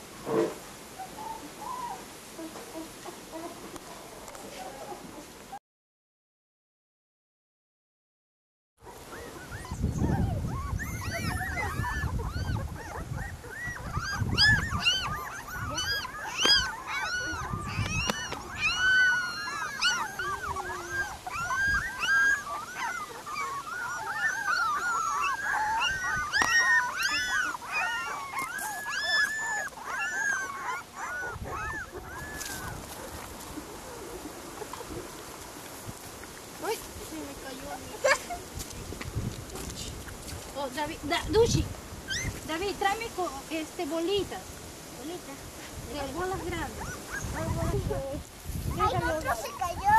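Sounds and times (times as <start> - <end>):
puppies whimpering and squealing: 1.0 - 3.7, 8.8 - 35.8, 36.6 - 38.6, 40.8 - 43.4, 45.9 - 49.9.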